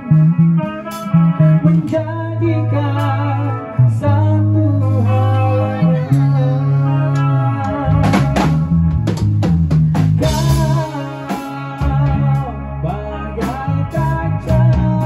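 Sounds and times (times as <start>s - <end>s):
electric guitars: 0.0s - 15.0s
person singing: 1.4s - 9.2s, 10.2s - 15.0s
drum kit hits: 7.9s - 12.2s.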